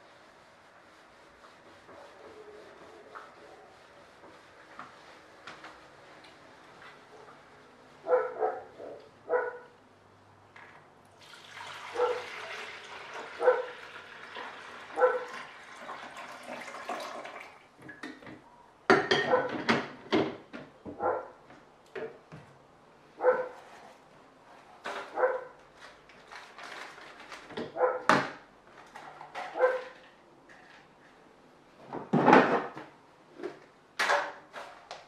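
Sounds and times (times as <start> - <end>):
dog barking: 8.0 - 9.7, 11.9 - 12.3, 13.4 - 13.8, 15.0 - 15.3, 19.2 - 19.6, 21.0 - 21.4, 23.2 - 23.6, 25.1 - 25.6, 27.8 - 28.1, 29.5 - 29.9
water pouring from glass carafe: 11.1 - 17.7.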